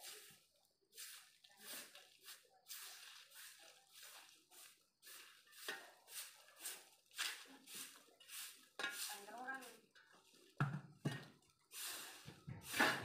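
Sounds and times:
broom sweeping leaves: 0:00.0 - 0:13.0
shovel scraping concrete: 0:11.9 - 0:13.0.

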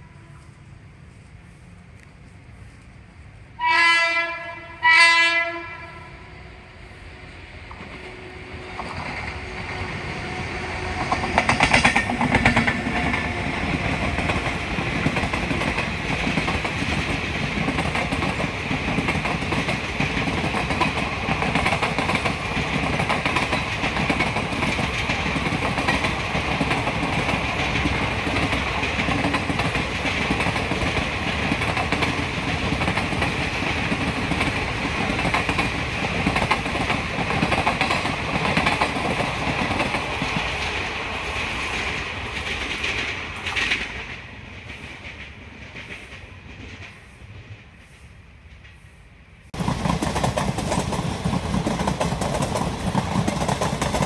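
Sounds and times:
passenger train passing: 0:00.0 - 0:54.0
wheels clattering over rails: 0:49.6 - 0:54.0.

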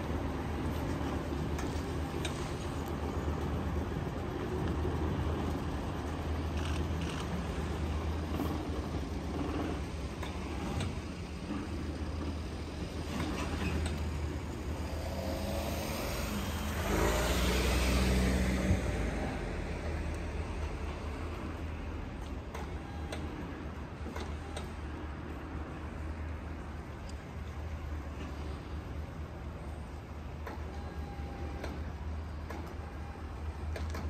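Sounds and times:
road traffic: 0:00.0 - 0:34.0
heavy vehicle engine running: 0:00.1 - 0:24.6
vehicle passing close: 0:14.5 - 0:20.6.

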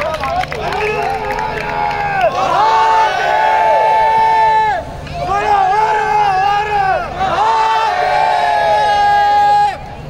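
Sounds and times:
men shouting in unison: 0:01.8 - 0:09.8.

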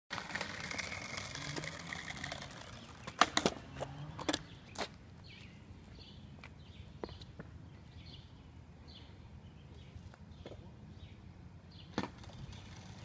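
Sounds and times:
skateboard wheels rolling on asphalt: 0:00.1 - 0:07.6, 0:11.7 - 0:13.0.

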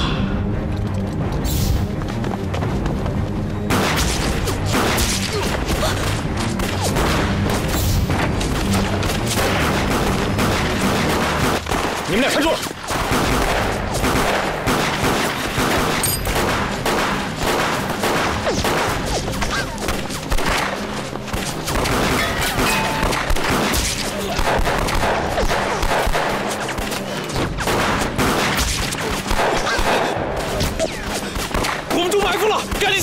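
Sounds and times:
pistol shots: 0:09.2 - 0:19.1, 0:19.8 - 0:32.0.

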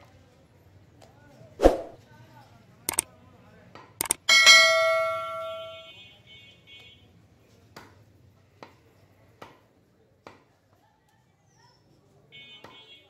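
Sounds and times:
bell-like ding: 0:04.3 - 0:05.9.

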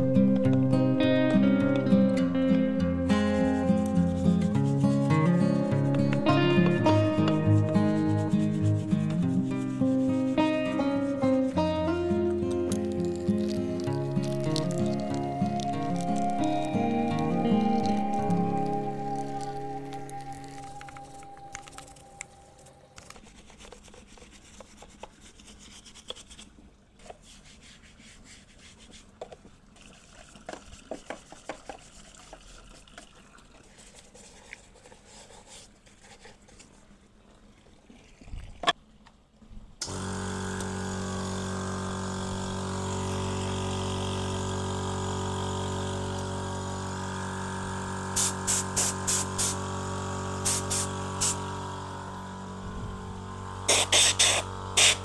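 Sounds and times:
rubbing and scraping: 0:07.4 - 0:11.6, 0:23.0 - 0:37.0
air blow gun hissing blasts: 0:39.8 - 0:55.0
air compressor running: 0:39.8 - 0:55.0.

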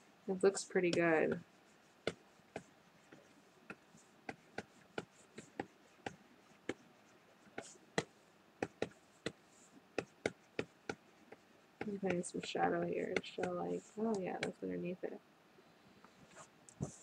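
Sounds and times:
stylus tapping on tablet: 0:07.6 - 0:09.4, 0:10.0 - 0:14.5.

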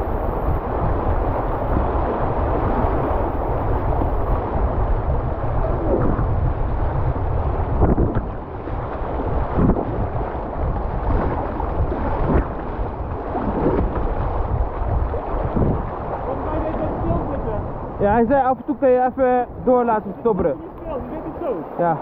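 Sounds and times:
wind buffeting microphone: 0:00.0 - 0:22.0
whitewater rushing: 0:07.5 - 0:22.0
paddle stroke splashes: 0:07.6 - 0:17.6.

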